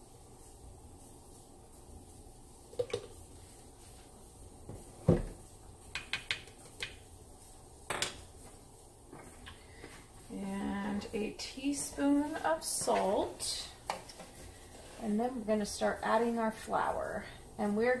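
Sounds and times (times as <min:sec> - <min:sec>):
jug thumping on countertop: 0:04.7 - 0:05.4.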